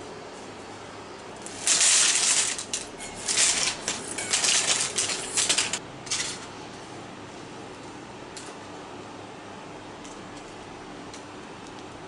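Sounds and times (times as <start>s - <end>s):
parchment paper crackling: 1.4s - 5.8s
crunchy pieces clattering onto plate: 1.4s - 6.4s.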